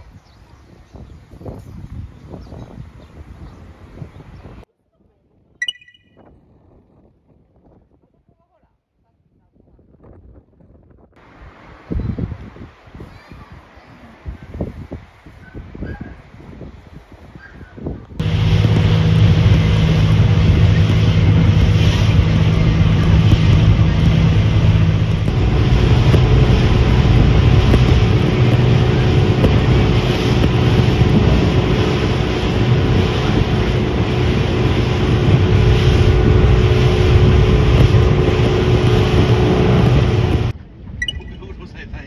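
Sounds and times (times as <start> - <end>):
wind buffeting microphone: 0.0 - 4.7, 9.1 - 42.0
boat engine humming: 18.2 - 41.4.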